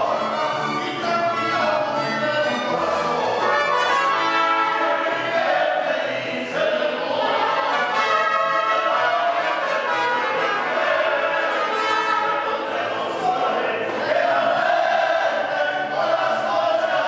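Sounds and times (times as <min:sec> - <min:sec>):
mariachi band playing: 0:00.0 - 0:17.0
people singing: 0:00.0 - 0:17.0.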